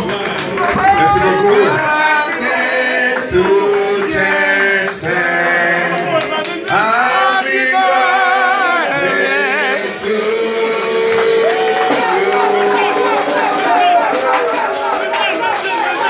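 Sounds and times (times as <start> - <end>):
live compas music: 0.0 - 16.0
man singing with vibrato: 0.8 - 12.8.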